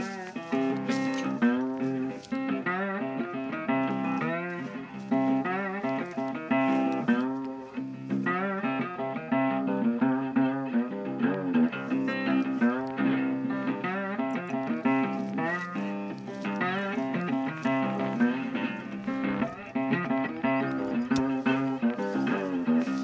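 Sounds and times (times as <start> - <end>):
plucked guitar tune: 0.0 - 23.0.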